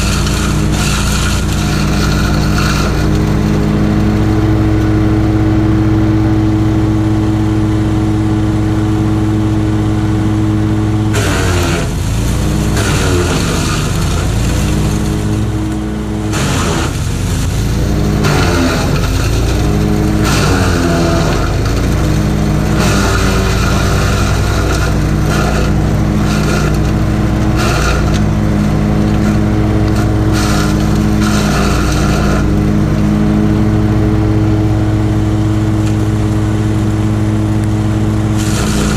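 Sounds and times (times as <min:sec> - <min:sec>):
wood chipper engine running: 0:00.0 - 0:38.9
branches crunching and cracking: 0:12.1 - 0:32.7.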